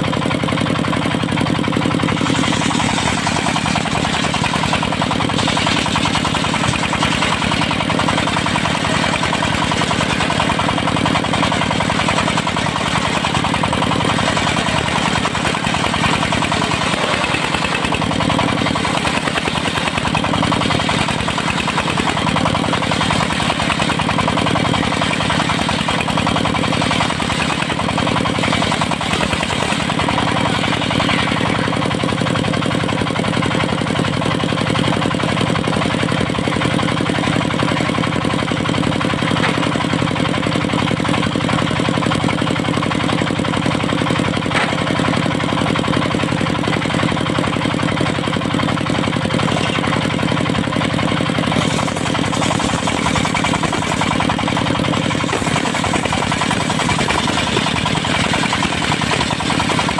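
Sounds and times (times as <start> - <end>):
diesel engine running: 0.0 - 59.9
circular saw ripping through log: 1.8 - 33.1, 49.2 - 59.9.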